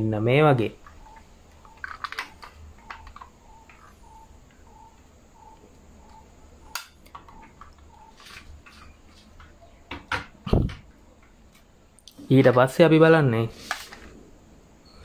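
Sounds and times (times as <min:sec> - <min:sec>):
faint high chirp: 0:00.8 - 0:09.9, 0:14.8 - 0:15.0.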